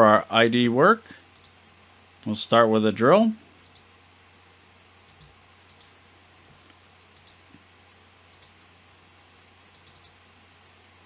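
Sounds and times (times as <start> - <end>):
steady low hum: 0.0 - 11.0
faint computer mouse clicks: 1.3 - 1.6, 3.6 - 3.9, 5.0 - 5.9, 6.7 - 7.4, 8.3 - 8.6, 9.7 - 10.2.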